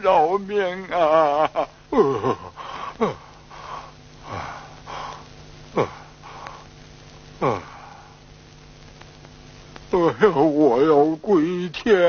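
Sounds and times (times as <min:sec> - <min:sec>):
man groaning in pain: 0:01.9 - 0:03.3, 0:05.8 - 0:06.1, 0:07.4 - 0:07.9
wheezing sniffing breaths: 0:02.4 - 0:06.8.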